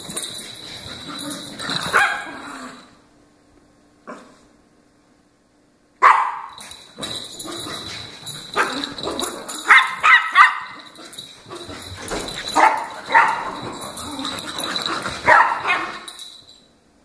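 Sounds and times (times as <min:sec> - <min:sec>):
small dogs barking: 0:01.9 - 0:02.4, 0:06.0 - 0:06.6, 0:09.6 - 0:11.0, 0:12.5 - 0:13.7, 0:15.2 - 0:16.1.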